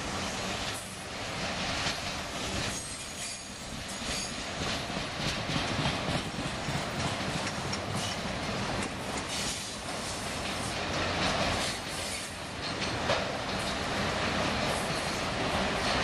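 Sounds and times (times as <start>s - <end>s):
wheels rumbling on rails: 0.0s - 16.0s
wheels clattering over rail joints: 1.6s - 16.0s
high wheel squeals: 2.7s - 4.4s.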